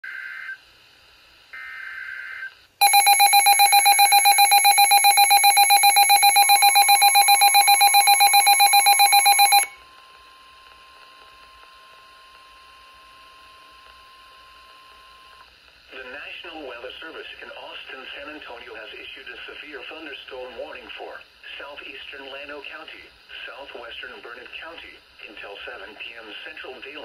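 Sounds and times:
fast electronic alarm beeping: 2.8s - 9.8s
steady single-pitch alarm tone: 2.8s - 9.8s.

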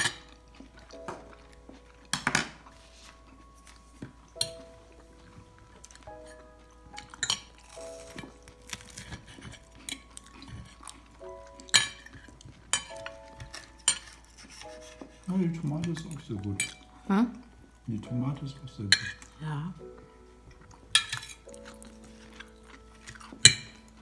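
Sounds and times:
soft background music: 0.0s - 24.0s
cutlery clinking on a plate: 7.0s - 11.0s, 11.6s - 15.1s, 20.9s - 23.9s.

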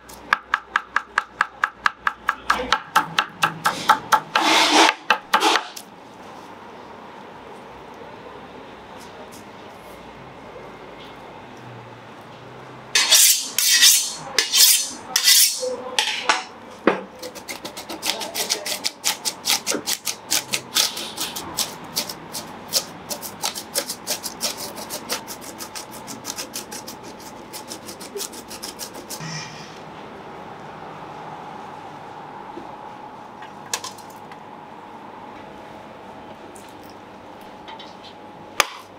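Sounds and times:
rapid knife chopping taps: 0.3s - 4.3s
knife scraping cutting board: 3.8s - 5.8s, 13.0s - 15.7s, 17.2s - 29.8s.

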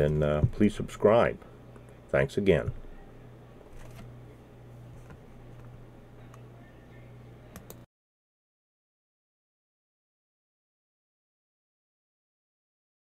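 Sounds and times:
steady low hum: 0.0s - 7.9s.

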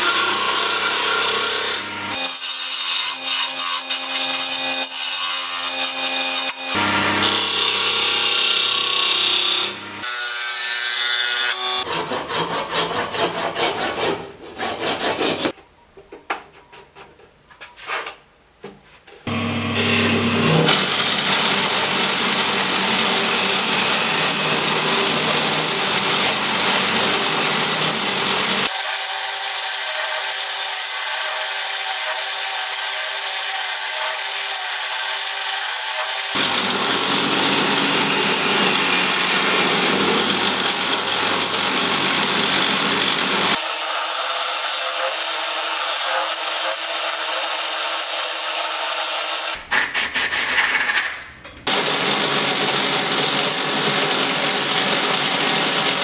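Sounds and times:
lathe motor hum: 36.4s - 43.6s.

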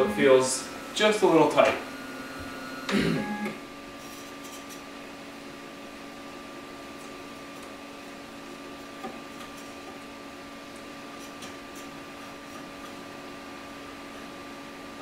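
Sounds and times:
printer humming: 0.0s - 4.4s.

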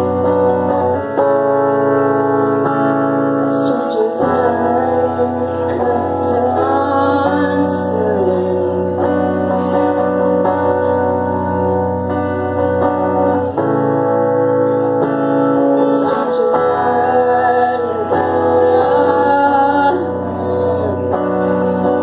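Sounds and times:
electric guitar chords: 0.0s - 22.0s
woman singing: 3.4s - 11.3s, 15.6s - 22.0s.

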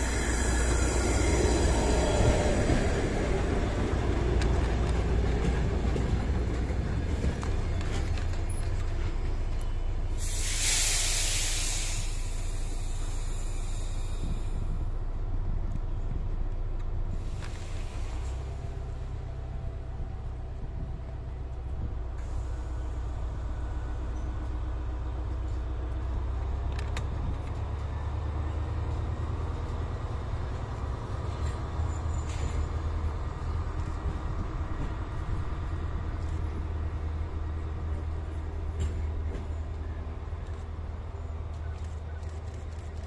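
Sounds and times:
train rumbling: 0.0s - 43.0s.

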